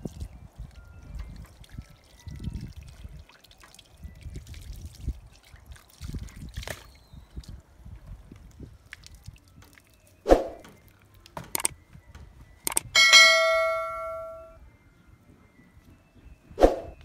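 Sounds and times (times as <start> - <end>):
mouse clicks: 11.5 - 11.7, 12.7 - 12.9
notification bell ding: 12.7 - 14.6.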